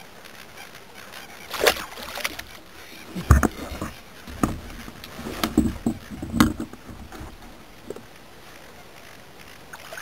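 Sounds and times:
water splashing: 1.2 - 8.7
knocks and bumps in kayak: 1.5 - 8.2.

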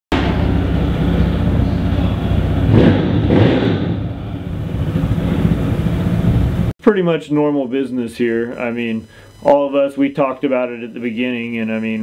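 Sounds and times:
motorcycle engine running: 0.1 - 6.7.

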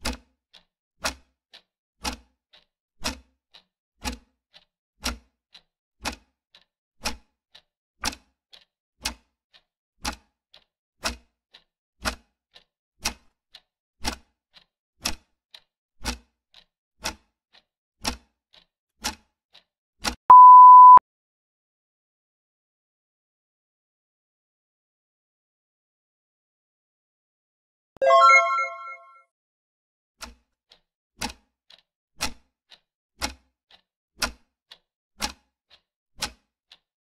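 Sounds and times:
clock ticking: 0.0 - 1.2, 4.0 - 12.2, 18.0 - 19.2.

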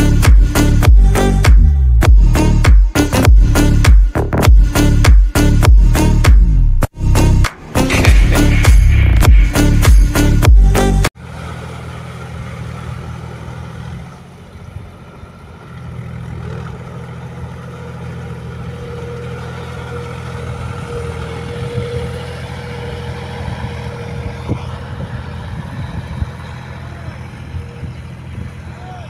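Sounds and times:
tractor diesel engine running: 7.0 - 29.0.

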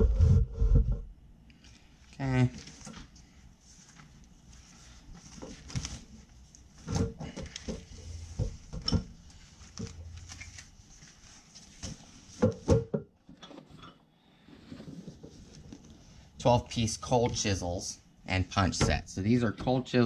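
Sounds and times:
pouches rustling: 2.5 - 12.6.

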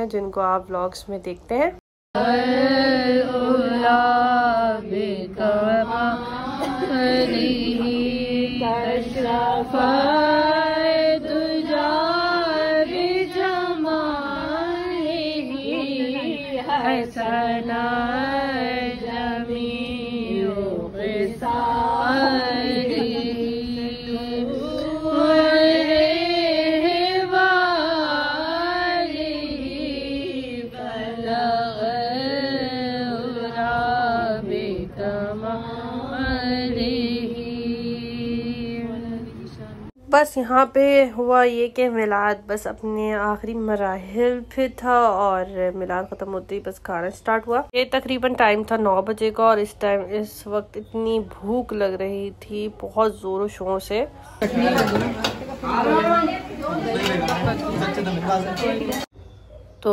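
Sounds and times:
person chanting: 2.2 - 39.7.

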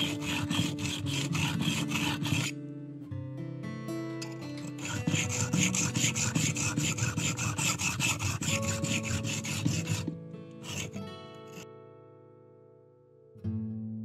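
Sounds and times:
knife scraping on whetstone: 0.0 - 2.5, 4.6 - 11.6
plucked guitar music: 0.0 - 14.0.

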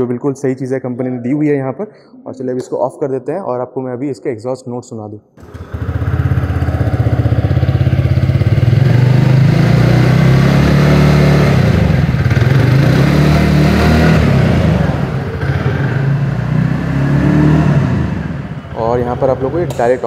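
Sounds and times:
scooter engine running: 5.4 - 19.9.

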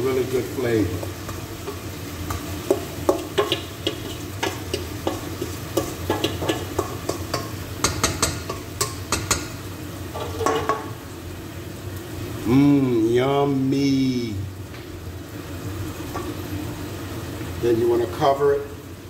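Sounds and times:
chicken sizzling in oil: 0.0 - 19.0.

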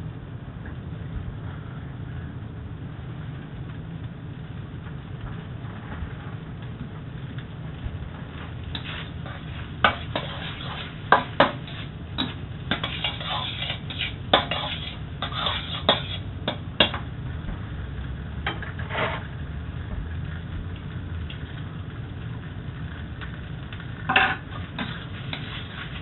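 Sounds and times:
low steady hum: 0.0 - 26.0
metal spatula scraping a wok: 8.7 - 17.0, 18.5 - 19.4, 24.1 - 26.0.

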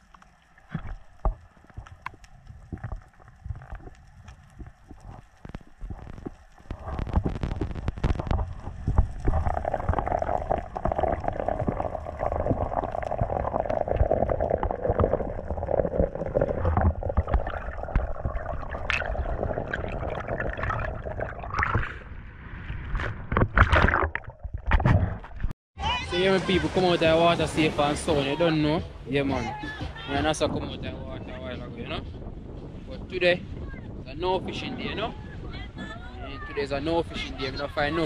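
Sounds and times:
underwater rumble: 0.0 - 25.5
water splashing: 0.0 - 25.5
water rushing: 5.2 - 24.3, 26.2 - 29.3.

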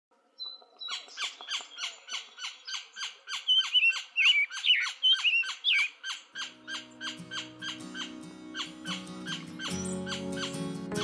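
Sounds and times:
birds chirping: 0.3 - 11.0
bird wavering calls: 0.8 - 10.8
music: 6.5 - 11.0.

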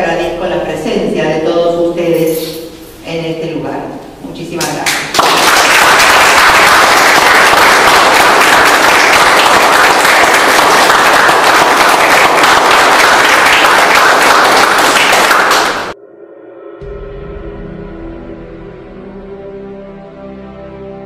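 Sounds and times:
audience applauding: 4.8 - 16.0.

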